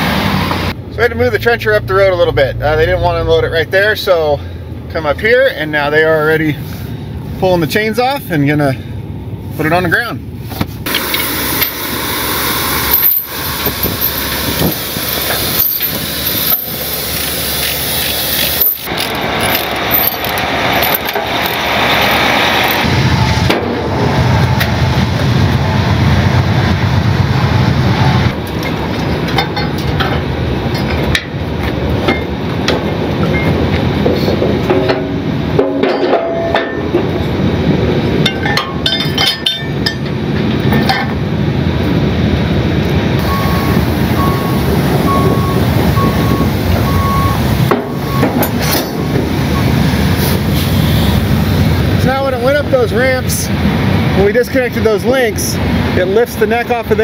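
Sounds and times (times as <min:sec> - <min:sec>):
truck diesel engine running: 0:08.3 - 0:35.6, 0:40.1 - 0:54.2
metal chains clanking: 0:10.9 - 0:12.0, 0:12.6 - 0:22.9, 0:38.3 - 0:40.1, 0:47.9 - 0:49.1.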